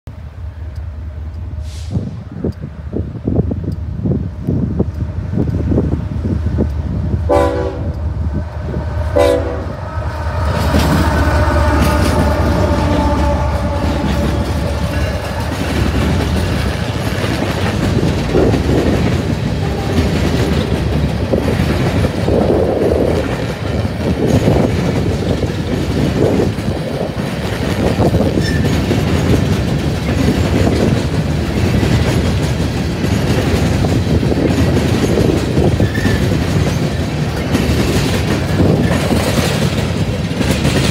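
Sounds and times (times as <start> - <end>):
diesel locomotives passing: 0.1 - 40.9
rattling rumble of train cars: 0.1 - 40.9
steel wheels clacking over rail joints: 3.7 - 40.9
freight train horn blasts: 7.2 - 16.4, 19.5 - 20.7.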